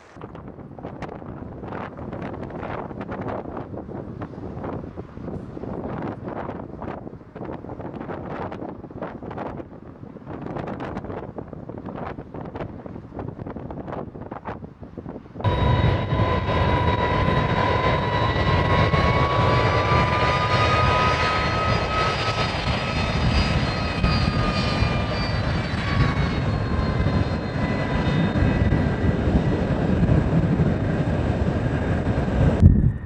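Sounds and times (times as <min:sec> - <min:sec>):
jet engines roaring at takeoff: 0:00.0 - 0:33.0
high engine whine: 0:15.4 - 0:33.0.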